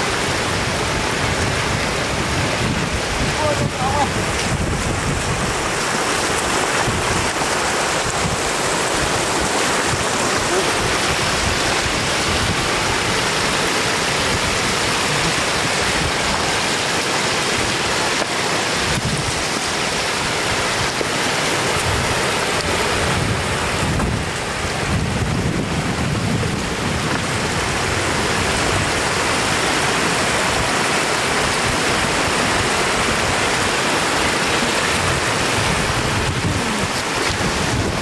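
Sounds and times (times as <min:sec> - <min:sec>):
floodwater rushing: 0:00.0 - 0:38.0.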